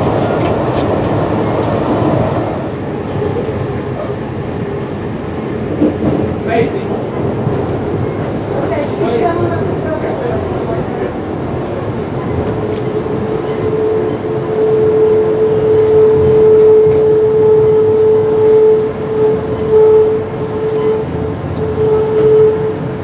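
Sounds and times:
train rumble: 0.0s - 23.0s
train brake squeal: 13.4s - 22.8s.

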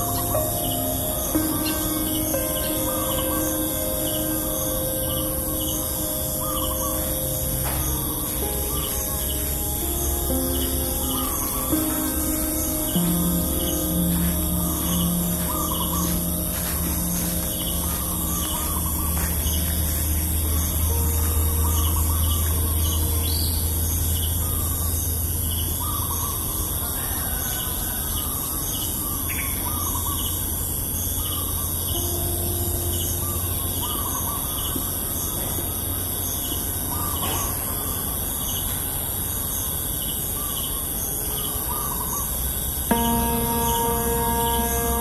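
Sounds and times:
birds calling: 0.0s - 24.7s
low hum: 0.0s - 26.4s, 42.9s - 45.0s.

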